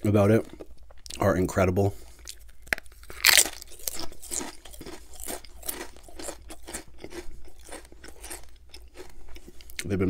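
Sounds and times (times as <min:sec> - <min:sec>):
potato chip crunching: 0:02.2 - 0:10.0.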